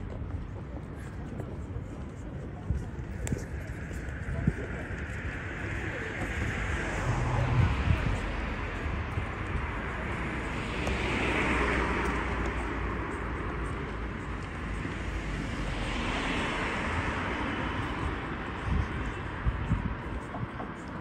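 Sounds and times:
low traffic rumble: 0.0s - 21.0s
cars passing: 4.8s - 21.0s.

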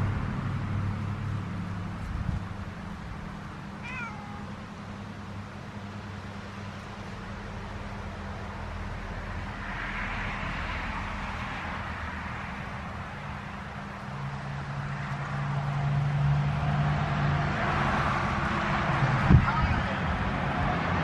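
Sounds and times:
wind rustling leaves: 0.0s - 15.8s
vehicle engine humming: 0.0s - 21.0s.

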